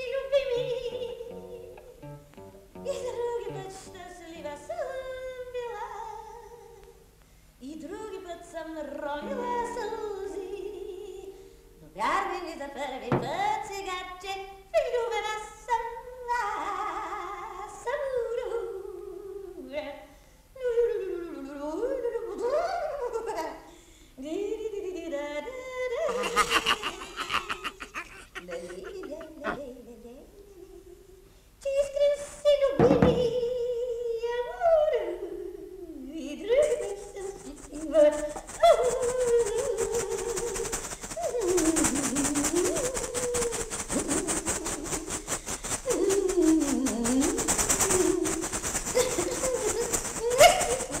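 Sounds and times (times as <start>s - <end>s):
rapid cartoon laughter: 26.1s - 29.6s, 47.8s - 51.0s
cartoon gibberish voices: 26.1s - 29.7s.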